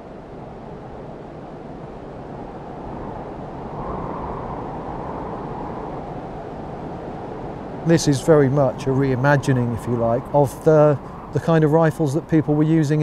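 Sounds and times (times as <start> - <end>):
wind rushing: 2.6 - 13.0.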